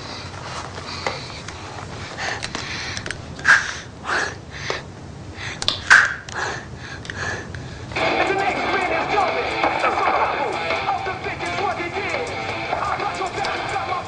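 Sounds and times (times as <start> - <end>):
boy gasping and wheezing: 0.0 - 7.9.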